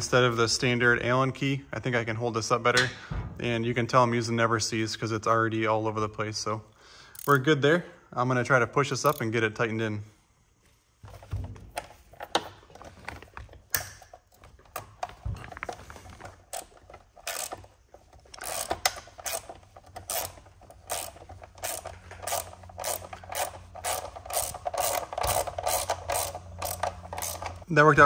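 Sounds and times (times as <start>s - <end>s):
hand ratchet clicking: 7.1s - 7.4s, 16.5s - 27.6s.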